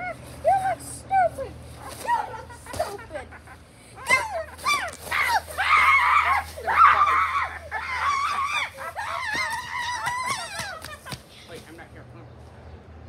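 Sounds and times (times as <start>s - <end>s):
child screaming: 4.0s - 11.0s.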